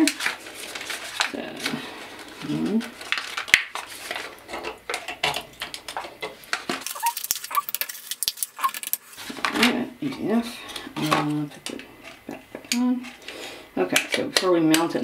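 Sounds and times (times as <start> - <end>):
blister pack crinkling and tearing: 0.0 - 9.3.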